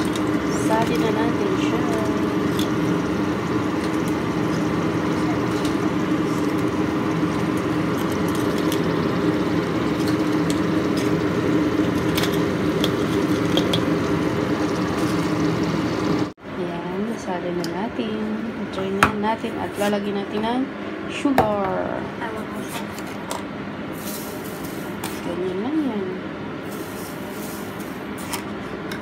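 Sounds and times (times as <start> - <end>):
frying in hot oil sizzling: 0.0 - 16.4, 24.0 - 25.2, 26.6 - 28.4
steady low hum: 0.0 - 29.0.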